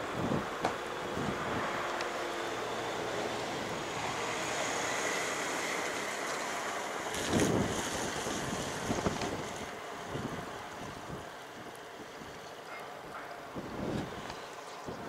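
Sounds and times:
wind buffeting microphone: 0.0 - 1.8, 7.0 - 15.0
sea wash: 0.2 - 14.8.

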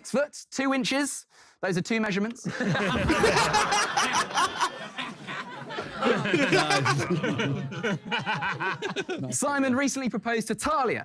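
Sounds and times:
audience laughing: 2.5 - 9.4
man chuckling: 5.9 - 9.4.

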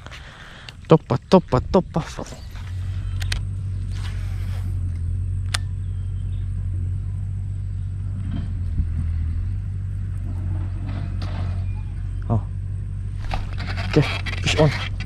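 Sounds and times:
steady low rumble: 0.0 - 15.0
faint rustles: 2.0 - 5.3, 13.0 - 15.0
sharp click: 3.1 - 3.5, 5.4 - 5.8.

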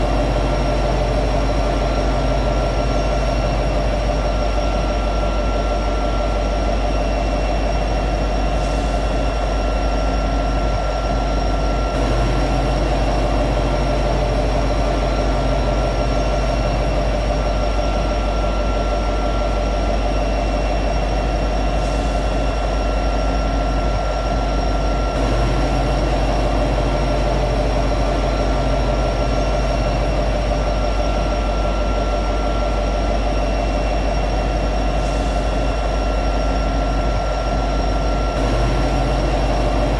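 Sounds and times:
diesel locomotive engine idling: 0.0 - 39.9.

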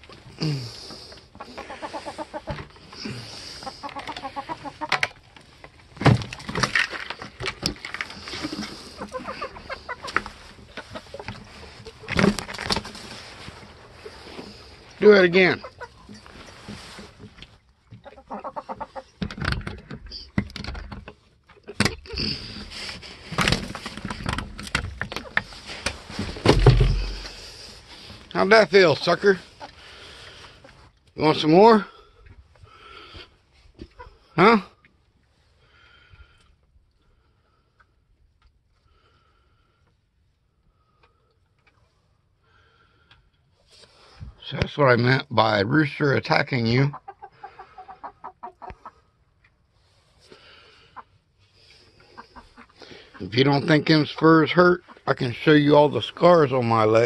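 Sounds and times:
chickens clucking: 0.8 - 5.4, 8.1 - 12.3, 13.5 - 23.0, 23.8 - 31.8, 33.8 - 34.4, 46.0 - 49.6, 50.5 - 57.0.

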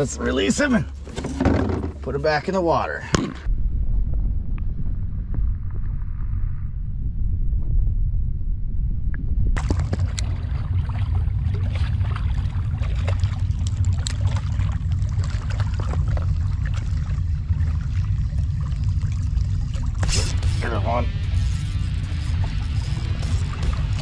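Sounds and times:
wind rumble on microphone: 3.4 - 24.0
water splashing and lapping: 9.6 - 24.0.

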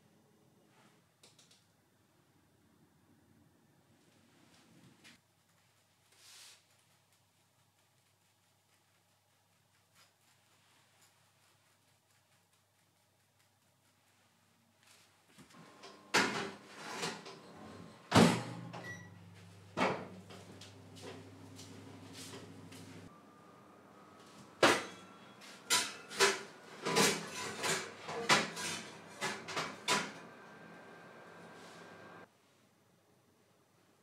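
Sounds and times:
oven humming: 15.5 - 32.3
oven door opening and shutting: 15.6 - 22.5, 24.5 - 32.1.

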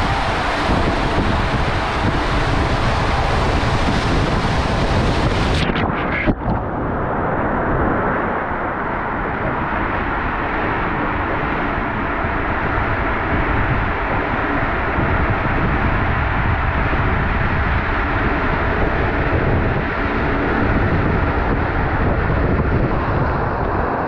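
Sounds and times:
water rushing down a slide: 0.0 - 6.7.

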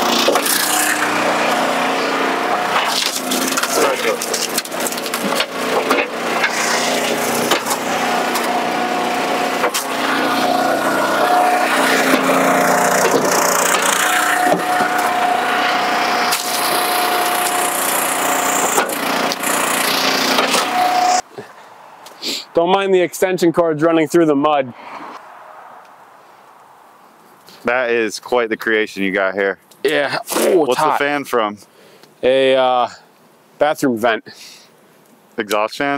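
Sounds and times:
wood cracking and splintering: 0.0 - 20.8
log splitter machine drone: 0.0 - 21.2.

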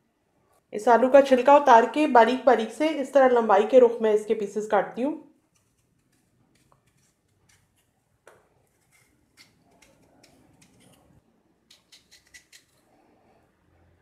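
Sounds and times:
knife slicing raw potato: 5.6 - 12.8.

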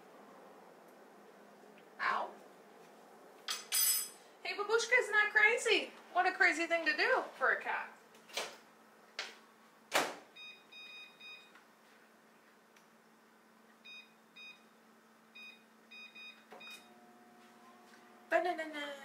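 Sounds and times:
microwave keypad beeps: 10.4 - 11.5, 13.8 - 14.7, 15.4 - 16.9
microwave oven humming: 12.7 - 19.0.

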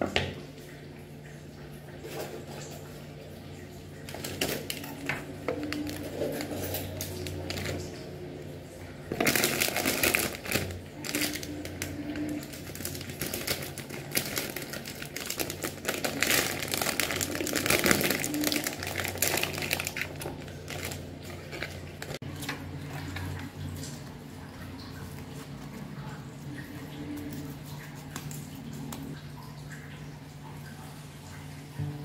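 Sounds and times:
plastic packaging crinkling: 4.1 - 8.0, 9.1 - 23.9.

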